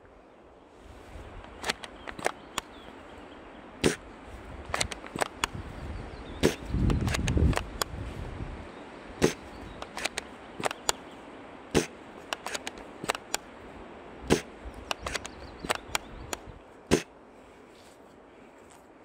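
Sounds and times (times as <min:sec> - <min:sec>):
faint clicks: 0:01.4 - 0:02.8, 0:09.7 - 0:11.0, 0:14.7 - 0:16.5
airsoft gun shots: 0:11.8 - 0:13.4, 0:14.3 - 0:16.0.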